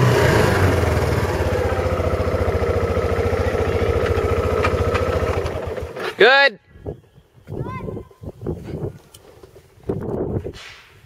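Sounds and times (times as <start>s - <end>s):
small engine running: 0.0s - 6.1s.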